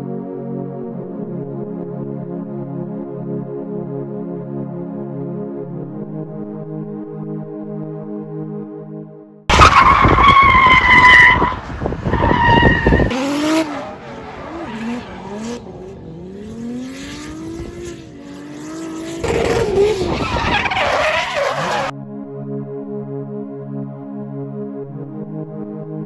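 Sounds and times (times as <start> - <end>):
car engines revving: 9.5 - 21.9.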